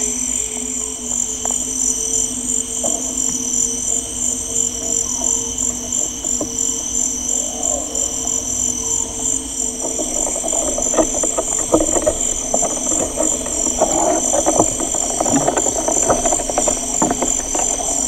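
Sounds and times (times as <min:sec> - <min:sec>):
crackle of short clicks: 0:09.8 - 0:18.0.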